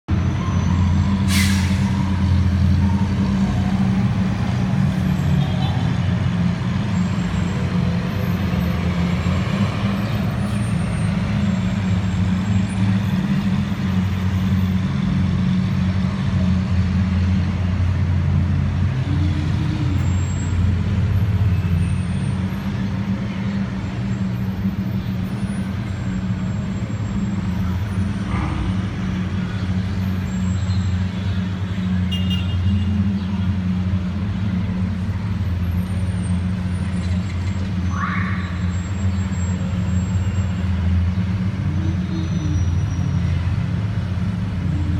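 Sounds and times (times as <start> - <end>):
car and motorcycle engines droning: 0.1 - 44.9.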